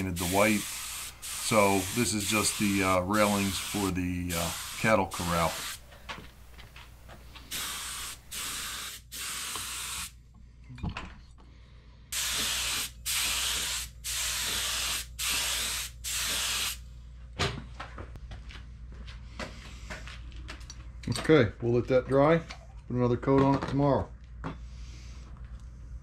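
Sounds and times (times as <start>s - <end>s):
paint spray gun hissing: 0.0s - 5.8s, 7.4s - 10.1s, 12.2s - 16.8s.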